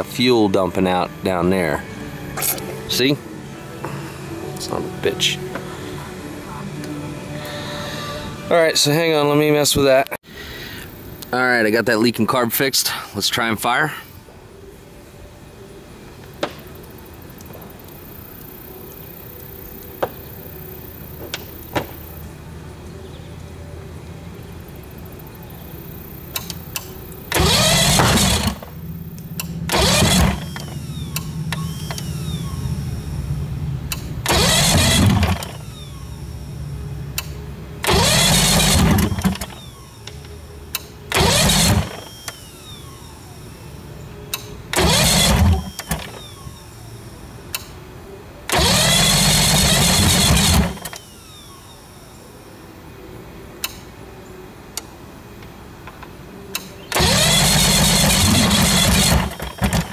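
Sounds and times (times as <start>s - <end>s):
falling starter whine: 26.3s - 43.5s, 44.3s - 47.0s, 48.5s - 51.7s, 56.9s - 59.9s
electric starter cranking outboard: 27.3s - 28.8s, 29.7s - 33.1s, 33.9s - 36.2s, 37.8s - 39.9s, 41.1s - 43.1s, 44.7s - 46.6s, 48.5s - 51.5s, 56.9s - 59.9s.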